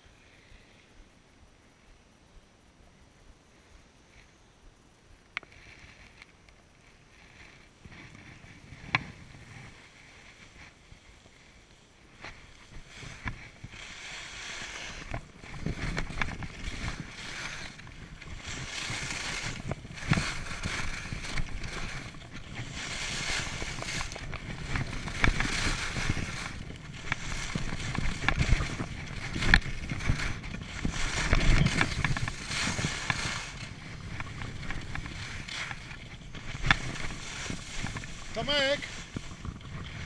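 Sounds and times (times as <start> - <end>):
skis scraping over packed snow: 5.4 - 40.0
wind on microphone: 12.3 - 40.0.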